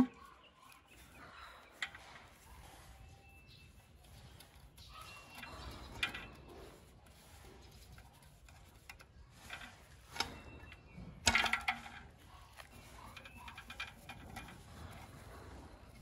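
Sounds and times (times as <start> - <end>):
metal rattling clatter: 8.7 - 16.0.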